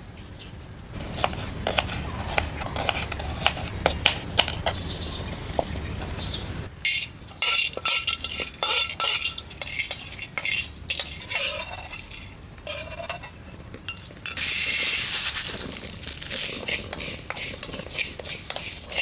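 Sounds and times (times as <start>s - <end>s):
spatula scraping metal wok: 1.0s - 4.8s, 6.9s - 13.5s, 14.2s - 19.0s
spices rattling on metal: 6.8s - 19.0s.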